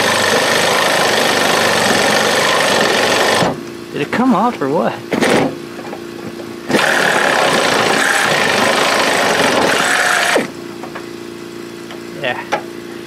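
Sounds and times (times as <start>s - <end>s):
power drill running: 0.0s - 3.5s, 6.7s - 10.6s.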